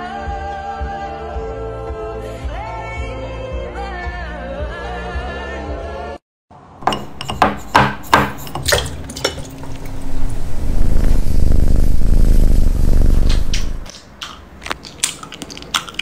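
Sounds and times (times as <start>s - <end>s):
loud dense scraping: 7.1s - 13.9s.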